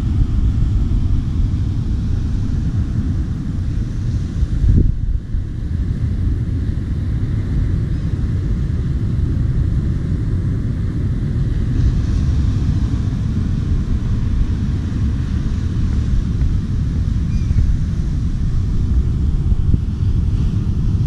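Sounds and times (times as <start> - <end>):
faint ocean surf hiss: 0.0 - 21.0
wind buffeting microphone: 0.0 - 21.0.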